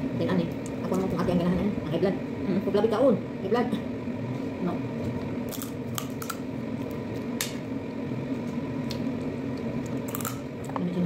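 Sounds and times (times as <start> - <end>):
crab shell cracking: 5.5 - 6.5, 9.9 - 10.5.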